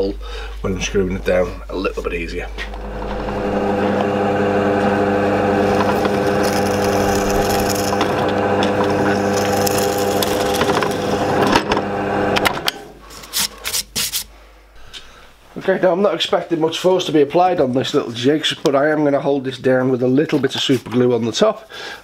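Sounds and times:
drill press boring through wood: 0:02.7 - 0:12.7.

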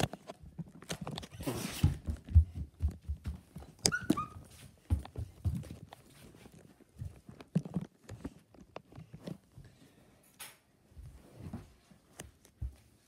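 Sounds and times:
footsteps on wooden floor: 0:00.6 - 0:07.8.

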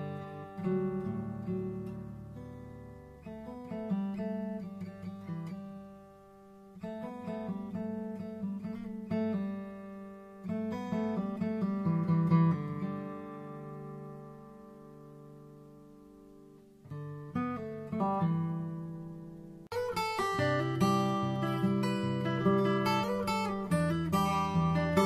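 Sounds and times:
acoustic guitar music: 0:00.0 - 0:25.0.

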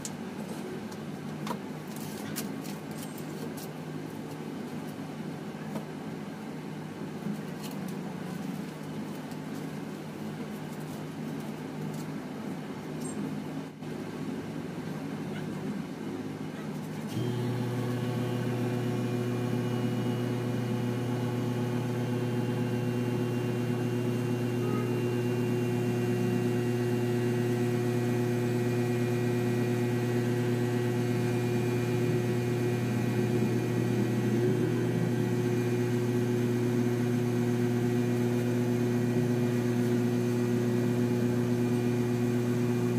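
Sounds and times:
low droning machine hum: 0:17.2 - 0:42.9.

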